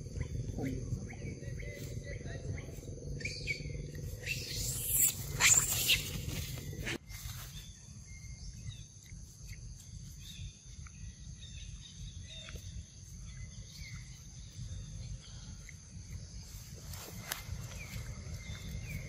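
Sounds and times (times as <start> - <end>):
steady low rumble: 0.0 - 5.4.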